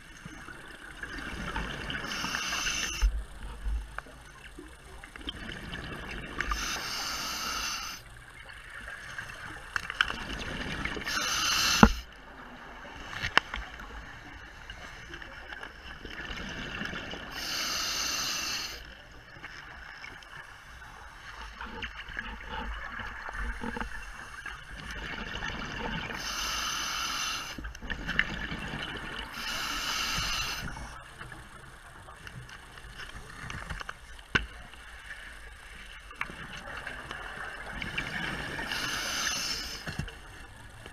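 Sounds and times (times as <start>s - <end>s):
regulator hiss: 0.0s - 4.4s, 6.3s - 10.0s, 10.9s - 12.2s, 17.2s - 19.0s, 26.1s - 28.2s, 29.1s - 32.0s, 38.2s - 40.5s
exhaled bubbles underwater: 0.0s - 6.8s, 8.3s - 13.0s, 13.6s - 17.5s, 21.4s - 26.3s, 27.4s - 31.3s, 36.1s - 40.9s.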